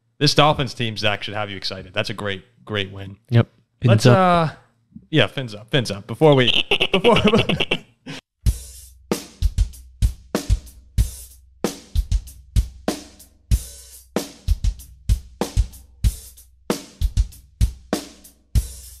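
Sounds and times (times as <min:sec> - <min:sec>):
drum kit beat: 0:06.3 - 0:07.8, 0:08.4 - 0:19.0.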